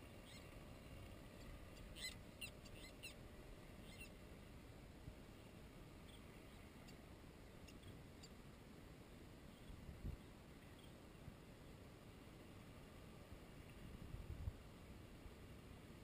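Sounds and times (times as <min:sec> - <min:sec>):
faint high chirps: 0:01.4 - 0:03.2, 0:03.8 - 0:04.2, 0:07.6 - 0:08.4, 0:09.5 - 0:11.0
wind rumble on microphone: 0:09.6 - 0:10.3, 0:13.4 - 0:15.4.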